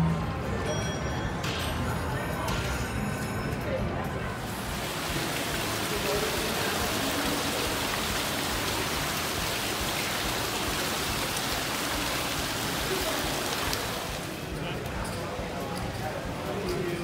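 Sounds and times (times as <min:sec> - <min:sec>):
fountain water splashing: 0:04.4 - 0:15.0.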